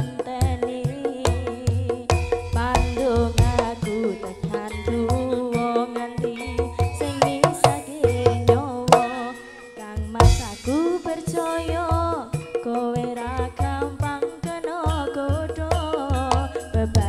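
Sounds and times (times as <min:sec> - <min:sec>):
hand drum beating rhythm: 0:00.0 - 0:17.0
woman singing sliding melody: 0:00.0 - 0:17.0
sustained pitched tones: 0:02.1 - 0:05.7.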